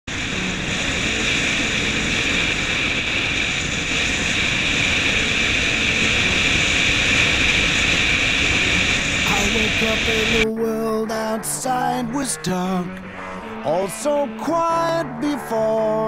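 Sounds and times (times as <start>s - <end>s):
car road noise: 0.1s - 10.4s
wind rush: 0.1s - 10.5s.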